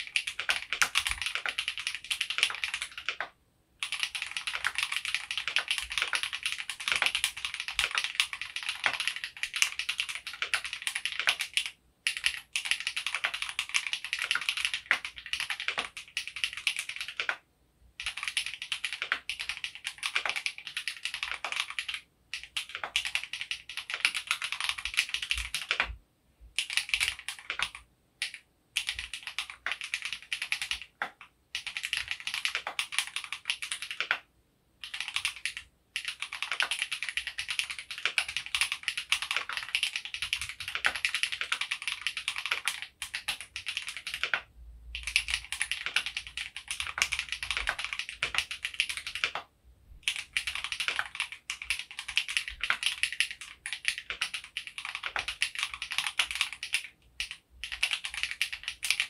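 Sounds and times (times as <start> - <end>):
typing on mechanical keyboard: 0.0 - 59.0.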